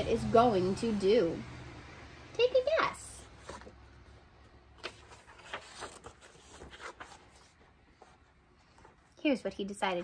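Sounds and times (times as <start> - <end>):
book pages turning: 3.2 - 9.2
paper rustling and tapping: 3.3 - 9.1.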